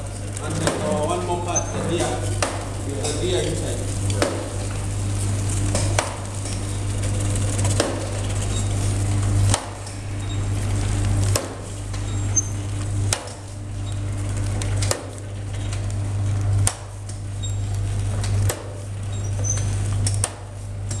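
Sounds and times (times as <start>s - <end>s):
packing machine humming: 0.0s - 21.0s.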